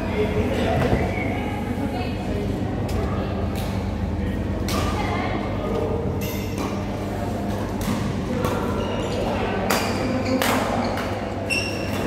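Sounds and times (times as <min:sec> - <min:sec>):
steady low hum: 0:00.0 - 0:10.2
shoe squeaks on court: 0:10.2 - 0:12.0.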